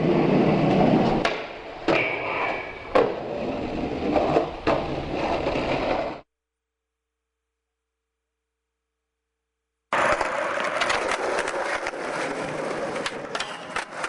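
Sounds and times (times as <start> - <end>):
skateboard scrape: 0.0 - 6.3, 9.9 - 14.0
skateboard wheels rolling: 0.0 - 6.3, 9.9 - 14.0
skateboard clacks: 9.9 - 14.0.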